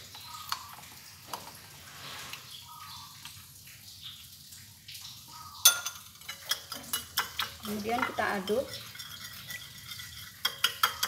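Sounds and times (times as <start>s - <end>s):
metal spoon clinking ceramic bowls: 5.6s - 11.0s.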